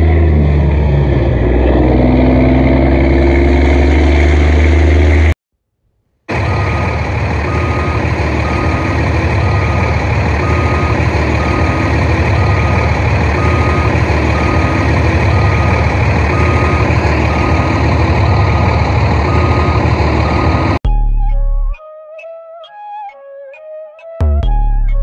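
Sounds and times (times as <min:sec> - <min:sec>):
heavy truck engine running: 0:00.0 - 0:05.4, 0:06.3 - 0:20.8
reversing alarm beeping: 0:06.3 - 0:20.8.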